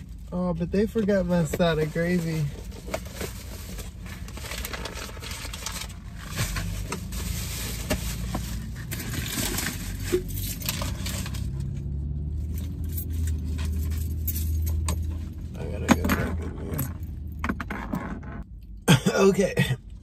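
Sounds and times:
paper and cardboard rustling: 1.5s - 11.6s.

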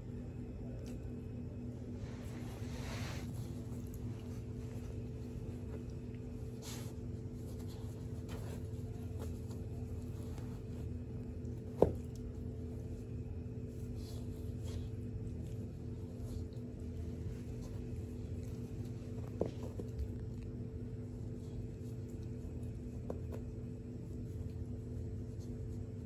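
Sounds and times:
electrical hum: 0.0s - 26.0s
fabric scratching and rustling: 2.1s - 11.2s.

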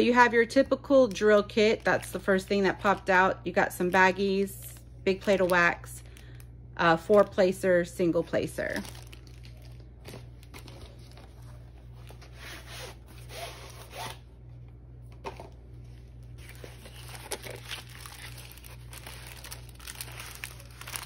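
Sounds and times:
paper and plastic rustling: 8.2s - 14.0s, 15.1s - 21.0s.

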